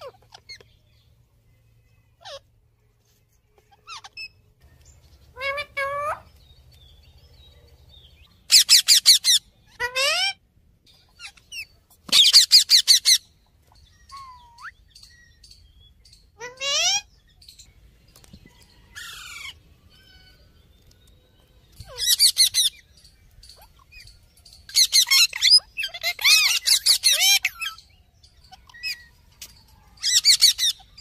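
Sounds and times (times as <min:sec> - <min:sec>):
parakeets squawking: 0:00.0 - 0:00.8, 0:02.2 - 0:02.4, 0:03.6 - 0:04.4, 0:05.3 - 0:06.3, 0:08.5 - 0:10.4, 0:11.1 - 0:13.3, 0:14.0 - 0:14.8, 0:16.4 - 0:17.1, 0:21.7 - 0:27.8, 0:30.0 - 0:31.0.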